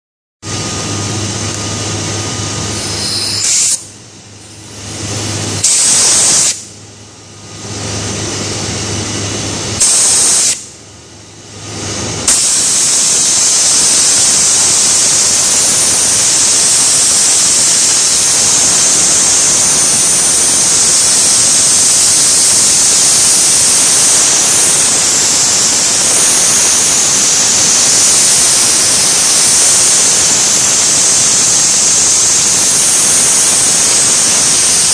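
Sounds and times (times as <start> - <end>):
compressed air hissing: 2.7 - 3.9, 4.5 - 6.7, 9.8 - 10.7, 12.3 - 34.9.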